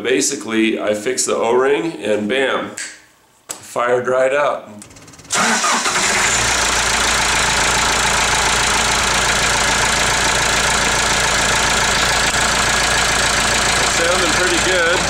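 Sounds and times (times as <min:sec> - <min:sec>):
diesel engine running: 0:04.9 - 0:15.0.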